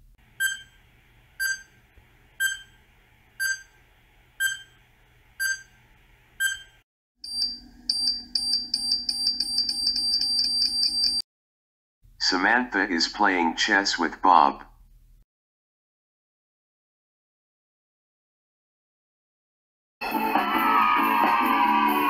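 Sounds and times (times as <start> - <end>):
short timer beeps: 0.4 - 0.8, 1.4 - 1.7, 2.4 - 2.8, 3.4 - 3.7, 4.4 - 4.8, 5.4 - 5.7, 6.4 - 11.2
alarm clock ringing: 6.4 - 11.2.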